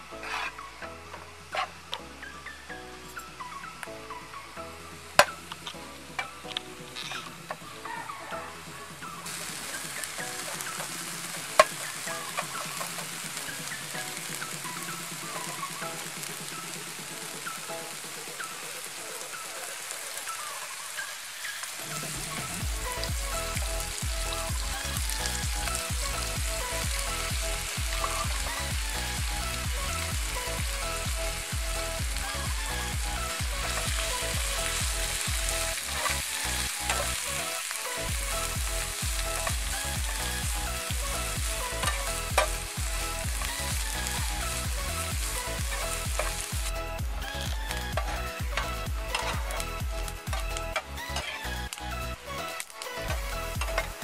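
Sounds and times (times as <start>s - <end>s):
aromatics sizzling in hot oil: 9.0s - 51.8s.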